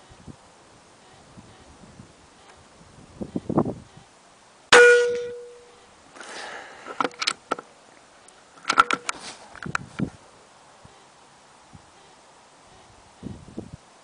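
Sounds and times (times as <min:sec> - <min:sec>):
air rifle shot with metallic ring: 0:04.7 - 0:05.7
rustling: 0:05.3 - 0:10.2
rifle bolt clicks and rattles: 0:07.0 - 0:07.6, 0:08.6 - 0:09.8.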